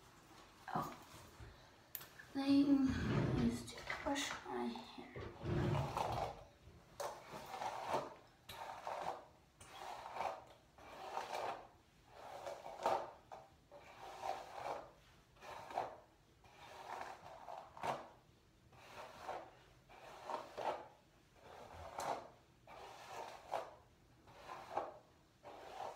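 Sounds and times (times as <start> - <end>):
hairbrush brushing hair: 7.0 - 13.1, 18.8 - 25.9.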